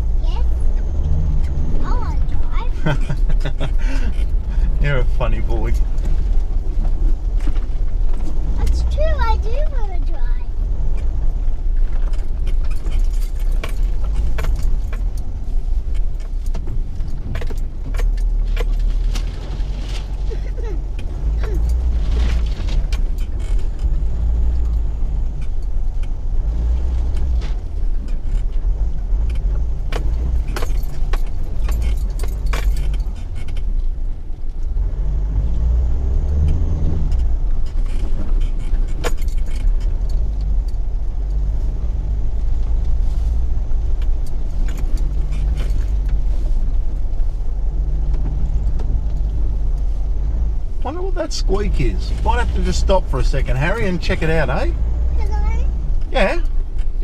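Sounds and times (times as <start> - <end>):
engine and tyre rumble: 0.0 - 57.0
vehicle clicks and rattles: 0.0 - 57.0
vehicle squeak: 17.1 - 25.6.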